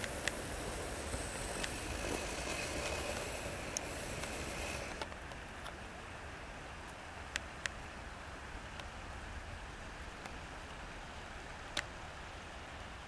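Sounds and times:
wind rumble on microphone: 0.0 - 5.1
river water hissing: 0.0 - 13.0.

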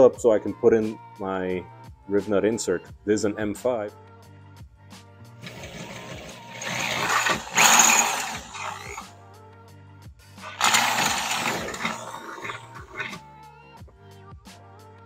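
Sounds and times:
background music: 0.0 - 15.0
electric drill boring metal: 5.4 - 9.1, 10.4 - 13.2.

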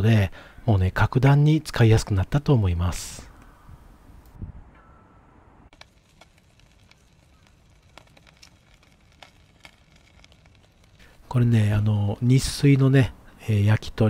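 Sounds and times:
sharp fire pops: 5.7 - 12.6
wood fire crackling: 5.7 - 14.0.

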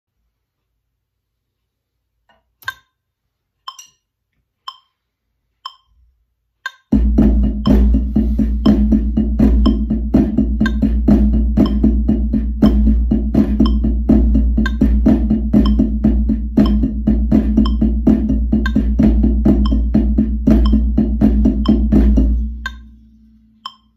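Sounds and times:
wood-block click track: 2.3 - 3.0, 3.6 - 23.9
sticks on drum practice pad: 4.6 - 6.0, 6.6 - 23.0, 23.6 - 23.9
backing track with low bass: 6.9 - 23.9.

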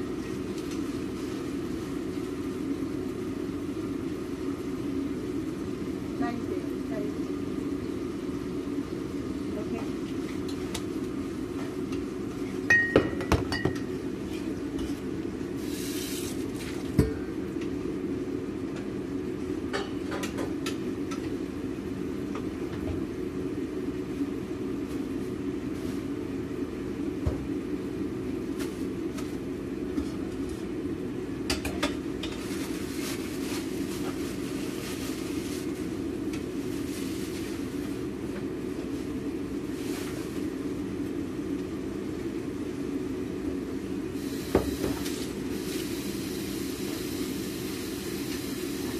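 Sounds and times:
range hood humming: 0.0 - 48.9.

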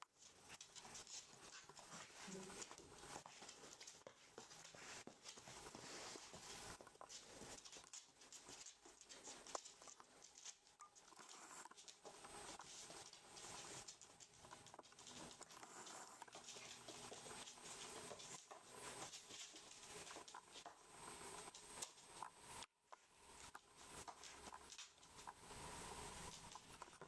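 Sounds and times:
puppy claws clicking on wooden floor: 0.2 - 5.8, 6.5 - 20.8.

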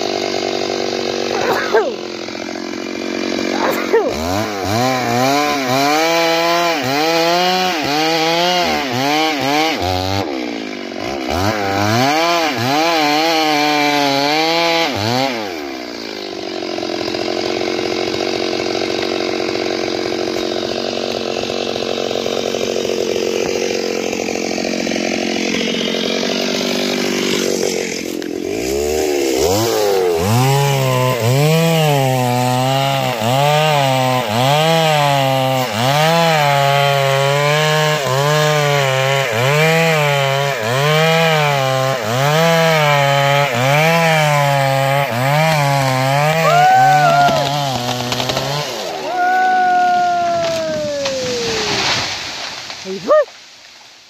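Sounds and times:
chainsaw cutting wood: 0.0 - 54.0.

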